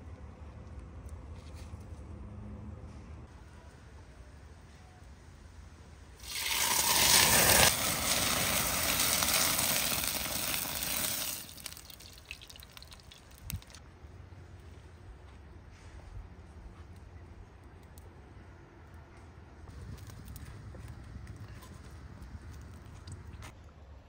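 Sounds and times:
water pouring: 6.2 - 13.8.

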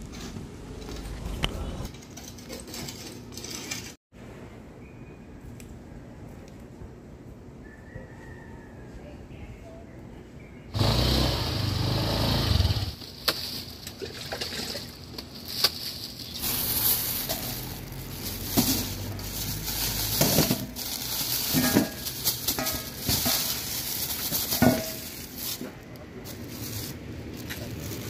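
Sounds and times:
motor scooter engine running: 10.8 - 13.0
plastic bags rustling: 12.9 - 28.0.

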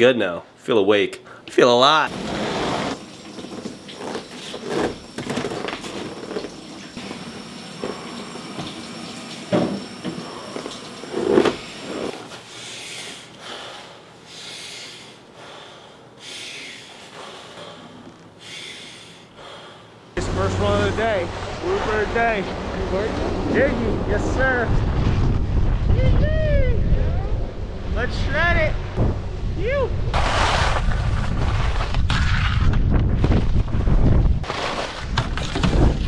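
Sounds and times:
man breathing hard: 12.4 - 20.2.

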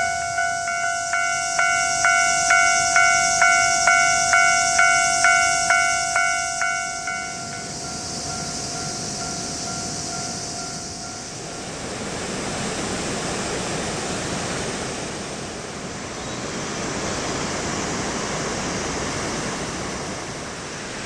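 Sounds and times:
level-crossing alarm bell ringing: 0.0 - 11.8
steady high hiss: 0.0 - 21.0.

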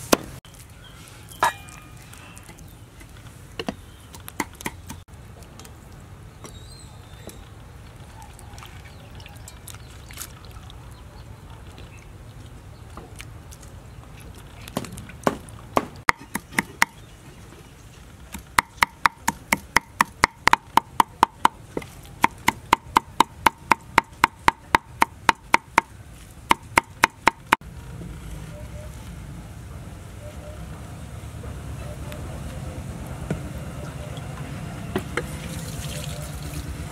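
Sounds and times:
chillies handled in water: 7.0 - 15.1.

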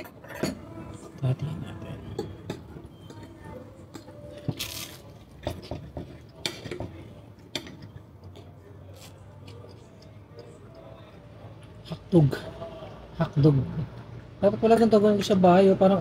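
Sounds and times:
cutlery clinking against plate: 0.0 - 0.8.

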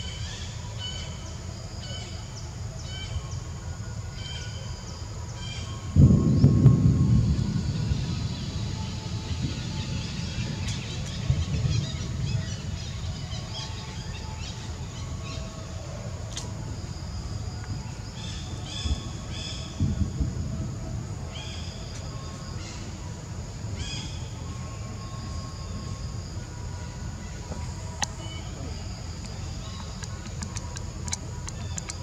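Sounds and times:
steady low rumble: 5.1 - 32.0
birds chirping: 27.3 - 32.0.

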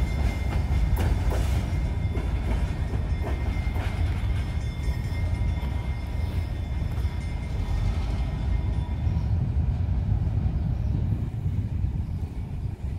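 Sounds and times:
freight train rumbling: 0.0 - 12.9.

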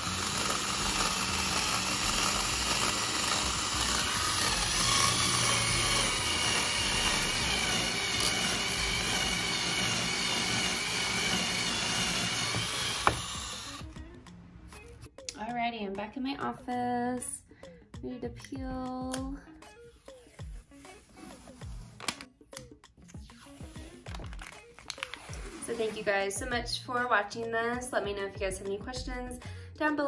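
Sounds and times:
power drill cutting plastic: 0.0 - 14.0.

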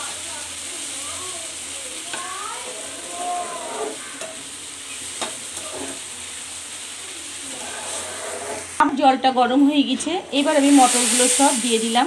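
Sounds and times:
spatula scraping a wok: 2.1 - 6.4, 7.3 - 8.9
spatula tapping pan: 5.2 - 6.0
steady hiss: 10.3 - 12.0.

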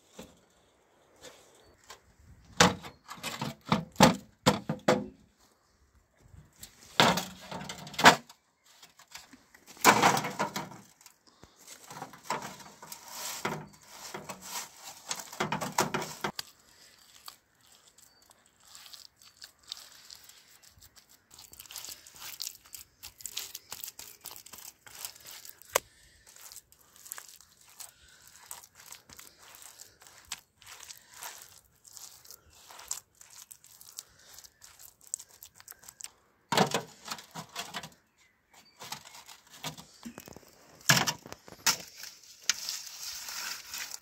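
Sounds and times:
metal sheet scraping and rattling: 11.9 - 16.3
hands patting wet mud: 13.2 - 36.2.

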